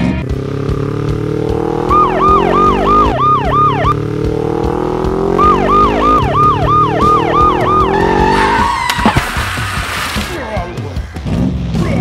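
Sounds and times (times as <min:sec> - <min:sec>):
engine humming rising in pitch: 0:00.0 - 0:10.3
yelping police siren: 0:01.8 - 0:04.0, 0:05.3 - 0:08.9.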